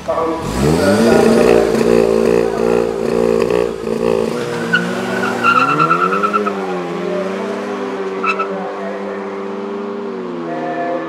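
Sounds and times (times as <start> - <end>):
car engines revving: 0.0 - 11.0
tyres squealing: 0.1 - 8.6.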